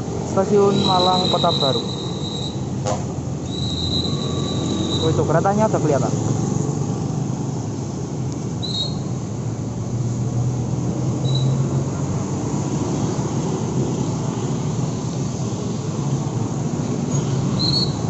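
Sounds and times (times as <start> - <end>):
cars and motorbikes passing: 0.0 - 18.0
high chirps: 3.5 - 5.3.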